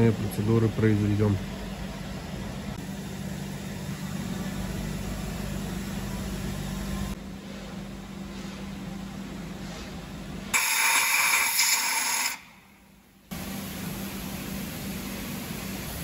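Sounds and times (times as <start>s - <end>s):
compressed air hissing: 10.5s - 12.6s.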